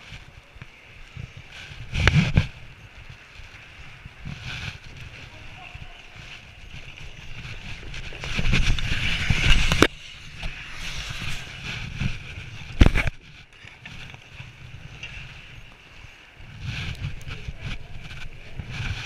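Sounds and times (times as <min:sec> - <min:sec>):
pads and gloves rubbing: 0:00.0 - 0:19.0
skates scraping ice: 0:00.1 - 0:19.0.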